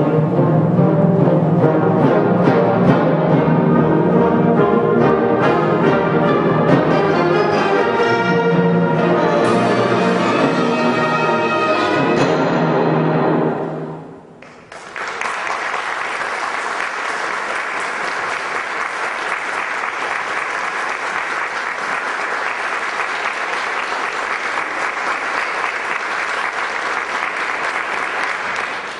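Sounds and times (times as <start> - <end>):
audience applause: 14.4 - 28.9.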